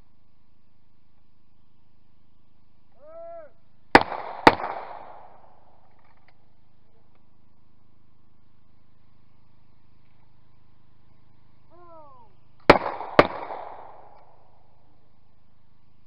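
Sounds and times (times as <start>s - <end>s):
shotgun shots: 3.9s - 5.7s, 12.6s - 14.5s
person calling for clay: 11.7s - 12.4s.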